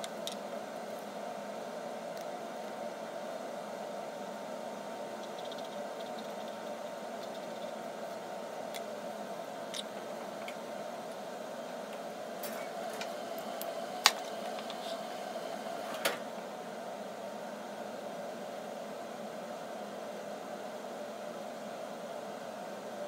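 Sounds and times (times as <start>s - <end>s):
room hiss and hum: 0.0s - 23.0s.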